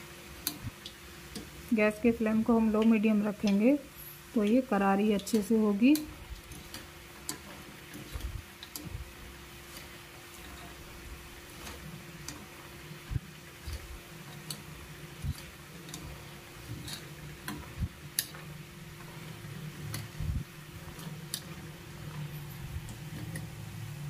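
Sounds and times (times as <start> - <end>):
food deep-frying in sizzling oil: 0.0 - 24.0
skimmer clicking and knocking on pan: 5.1 - 9.1, 13.6 - 23.6.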